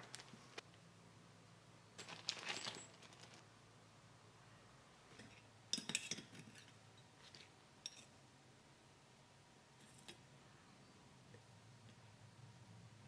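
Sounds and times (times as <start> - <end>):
metal parts and tools clinking: 2.0 - 3.4, 5.1 - 8.1.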